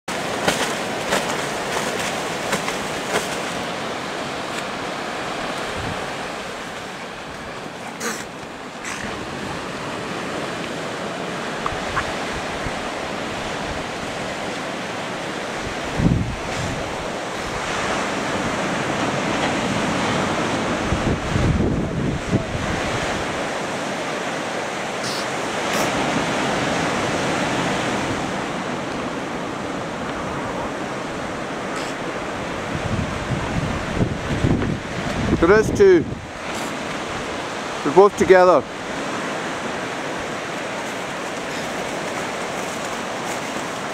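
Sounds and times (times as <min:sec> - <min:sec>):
ocean surf washing onto beach: 0:00.1 - 0:43.9
wind gusting on microphone: 0:00.2 - 0:43.9.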